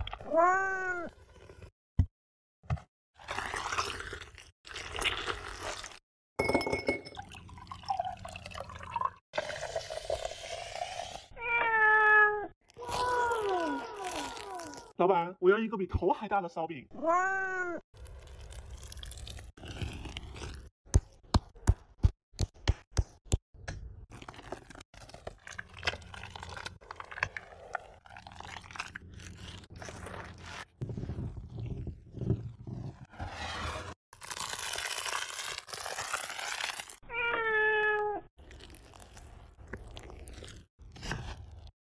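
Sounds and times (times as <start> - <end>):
ice clinking against glass: 6.4 - 7.4
liquid pouring into glass: 6.6 - 11.1
wet crunching and scraping in bowl: 24.1 - 37.0, 38.4 - 41.7.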